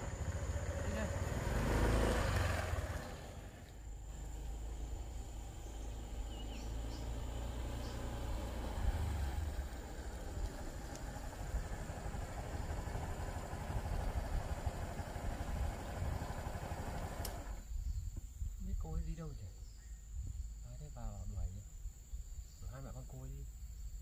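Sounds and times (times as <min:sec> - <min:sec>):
motorbike engine drone: 0:00.0 - 0:17.7
road noise: 0:00.0 - 0:17.7.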